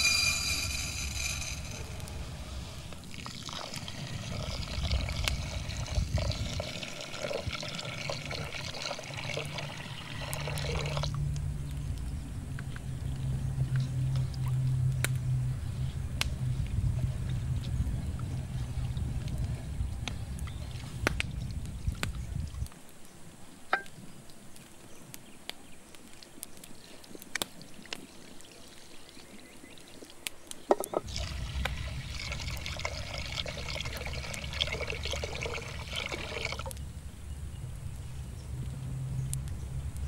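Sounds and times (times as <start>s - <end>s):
rice rinsed in water: 0.0s - 11.1s, 27.6s - 36.8s
water pouring and splashing: 1.2s - 11.2s, 27.4s - 36.8s.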